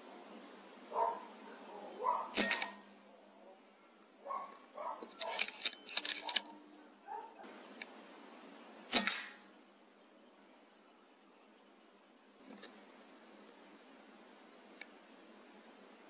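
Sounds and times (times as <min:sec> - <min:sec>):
air rifle firing: 0:02.3 - 0:03.0, 0:08.9 - 0:09.6
sharp clicks and rattles: 0:02.3 - 0:03.0, 0:04.5 - 0:06.6.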